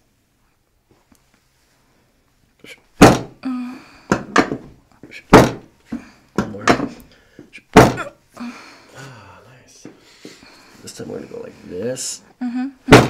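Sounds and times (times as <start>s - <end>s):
woman's sharp pained breaths: 3.4s - 4.3s, 8.4s - 9.1s.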